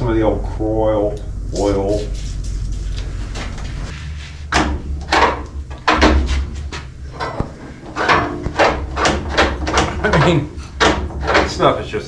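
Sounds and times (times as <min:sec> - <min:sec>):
metal handle creaking and clunking: 0:04.5 - 0:11.8.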